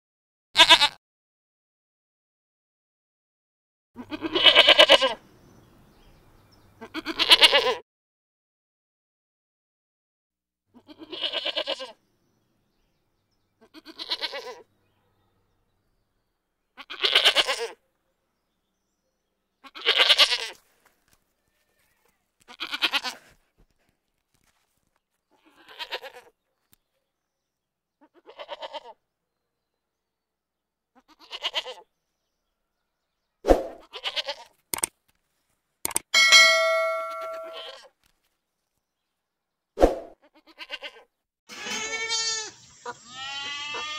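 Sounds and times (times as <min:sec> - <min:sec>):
wavering bleating calls: 0:00.6 - 0:01.0, 0:04.0 - 0:05.2, 0:06.8 - 0:07.8, 0:10.8 - 0:12.0, 0:13.6 - 0:14.7, 0:16.8 - 0:17.8, 0:19.6 - 0:20.6, 0:21.6 - 0:23.2, 0:25.4 - 0:26.3, 0:28.0 - 0:29.0, 0:31.0 - 0:31.8, 0:33.8 - 0:34.5, 0:40.2 - 0:43.9.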